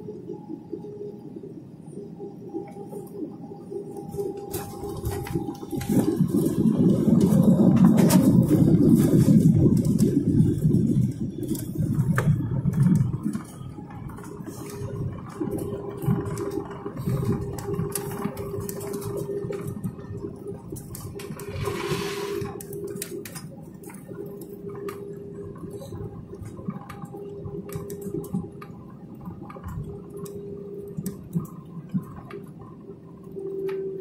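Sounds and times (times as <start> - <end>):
airliner cabin hum with whine: 0.0 - 34.0
small rattles and clicks: 4.0 - 32.6
short rush of hiss: 21.5 - 22.5.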